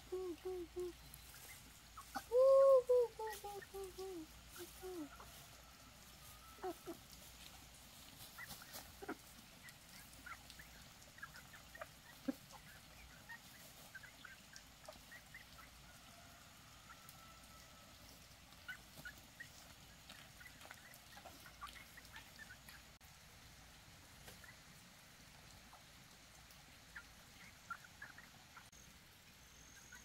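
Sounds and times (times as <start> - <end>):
domestic fowl calls: 0.1 - 7.3.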